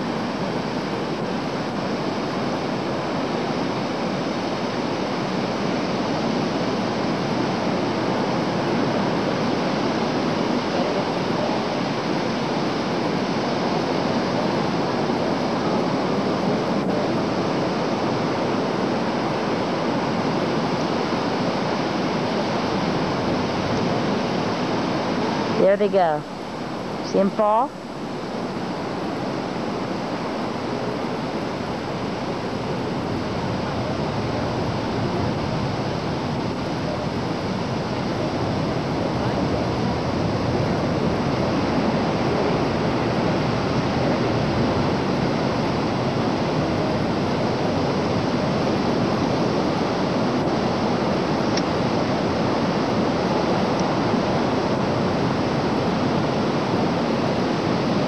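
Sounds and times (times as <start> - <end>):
steady rushing noise: 0.0 - 58.0.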